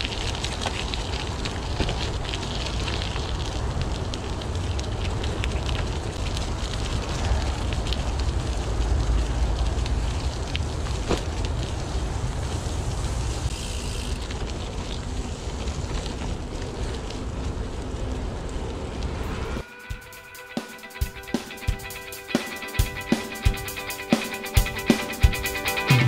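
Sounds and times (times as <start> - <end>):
bike tyres crunching on gravel: 0.0 - 19.2.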